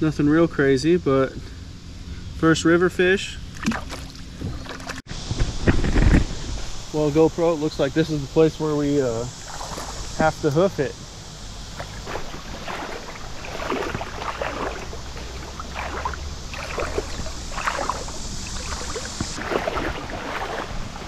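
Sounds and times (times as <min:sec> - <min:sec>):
footsteps splashing through water: 0:03.6 - 0:05.0, 0:09.4 - 0:10.2, 0:11.7 - 0:21.0.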